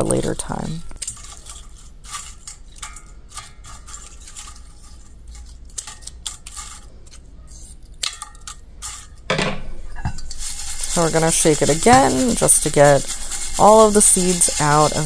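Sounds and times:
dried stems crackling in a colander: 0:00.0 - 0:09.2, 0:10.2 - 0:15.0.

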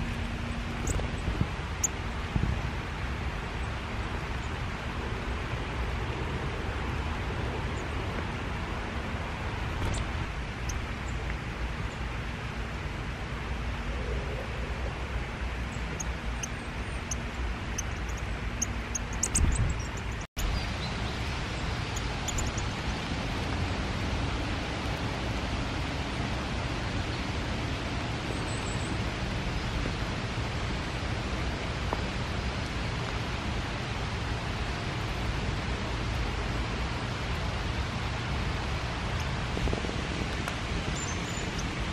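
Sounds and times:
rain on leaves: 0:15.0 - 0:41.9.

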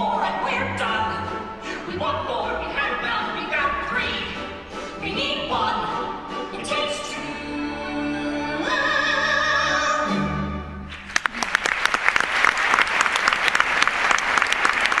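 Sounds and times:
man and woman singing with orchestra: 0:00.0 - 0:10.7
audience applause: 0:10.9 - 0:15.0.

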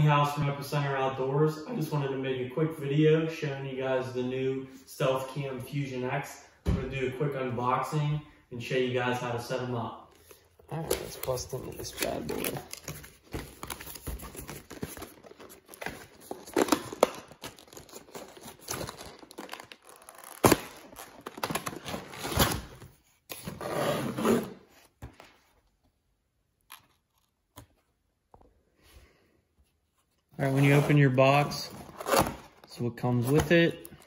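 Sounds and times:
cardboard and plastic rustling: 0:10.7 - 0:23.7.

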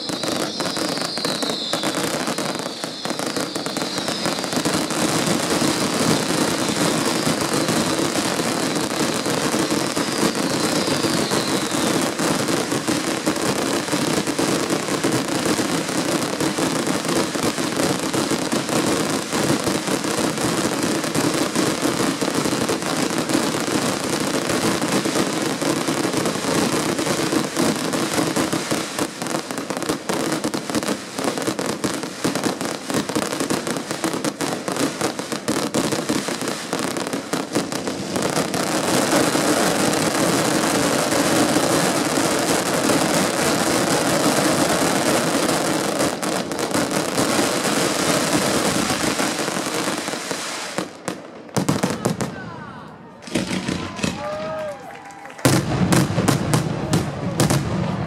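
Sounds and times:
fireworks crackling and banging: 0:00.0 - 0:58.0.

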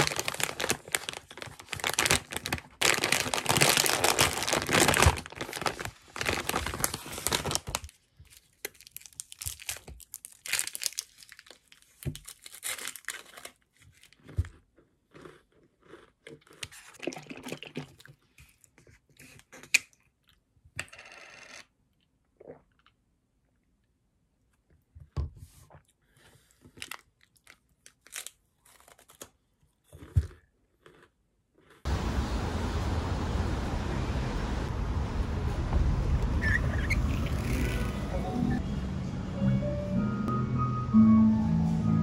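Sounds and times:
plastic snack bag crinkling: 0:00.0 - 0:18.1, 0:26.5 - 0:31.8
snack crunching: 0:12.6 - 0:18.6, 0:26.8 - 0:31.9.

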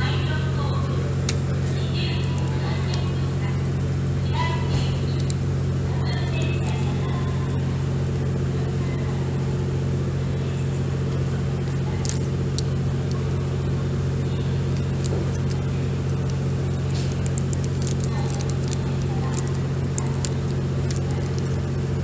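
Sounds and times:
low mechanical hum: 0:00.0 - 0:22.0
small clicks: 0:01.2 - 0:06.9, 0:12.0 - 0:13.4, 0:14.3 - 0:21.7.

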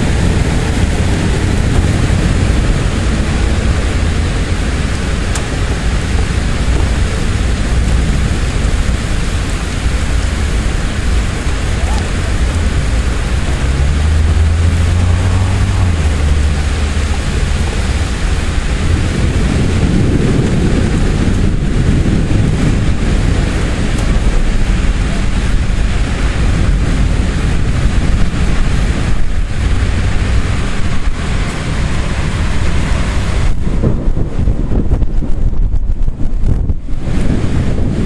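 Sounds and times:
deep thunder rumble: 0:00.0 - 0:38.0
rain hissing: 0:00.0 - 0:38.0
wind buffeting microphone: 0:00.0 - 0:38.0.

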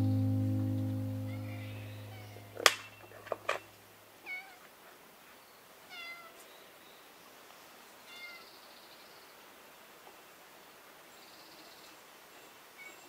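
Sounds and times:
cat meowing: 0:05.9 - 0:06.3.

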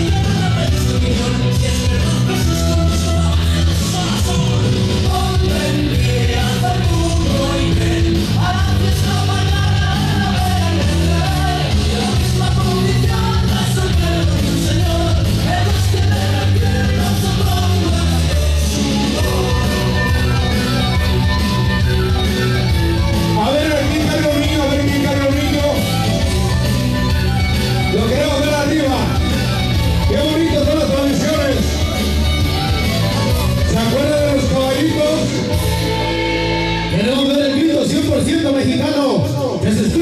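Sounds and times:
loud dance music with singing: 0:00.0 - 0:40.0.

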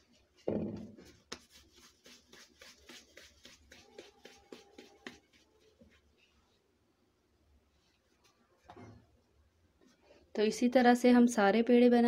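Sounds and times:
hands rubbing and patting dough: 0:00.0 - 0:06.8, 0:07.5 - 0:08.7
dull knock: 0:00.5 - 0:01.0.

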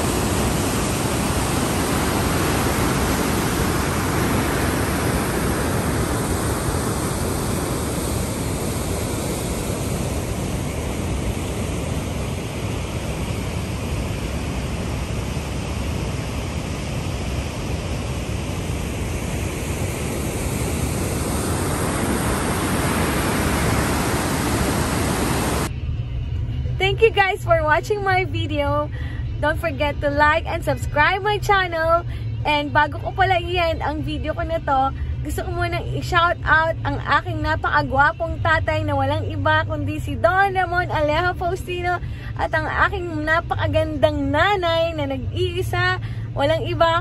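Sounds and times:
water rushing into spillway: 0:00.0 - 0:13.3.

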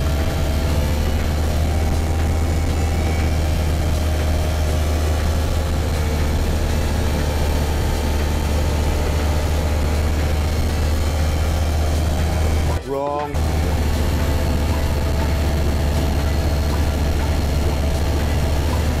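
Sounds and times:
aircraft engine drone: 0:00.0 - 0:19.0.

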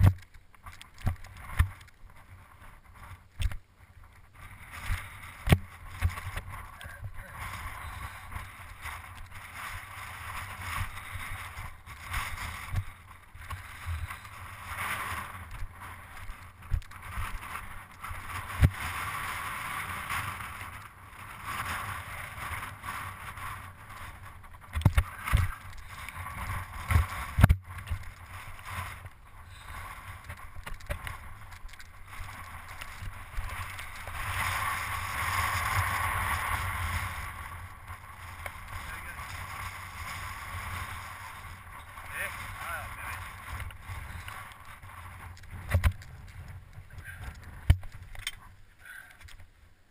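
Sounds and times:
wind on microphone: 0:01.0 - 0:48.6
mountain bike clattering: 0:04.7 - 0:49.5.

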